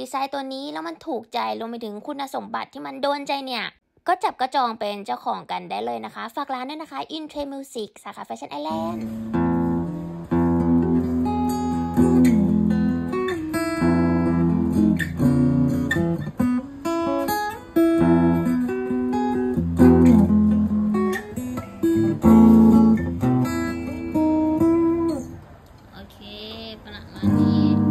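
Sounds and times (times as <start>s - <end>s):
guitar playing: 8.7s - 25.7s, 27.0s - 27.9s.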